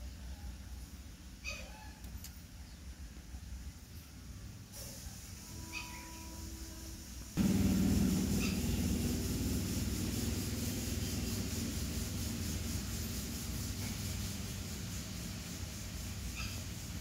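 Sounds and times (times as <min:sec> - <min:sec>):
low rumbling noise: 0:07.4 - 0:17.0.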